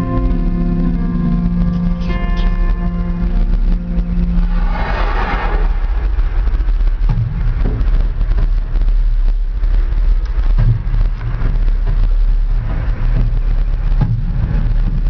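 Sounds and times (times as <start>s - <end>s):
cable car low rumble: 0.0s - 15.0s.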